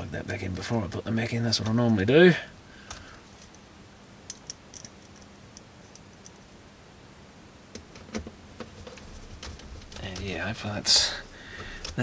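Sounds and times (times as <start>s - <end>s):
screwdriver and small parts clicking: 4.3s - 6.4s.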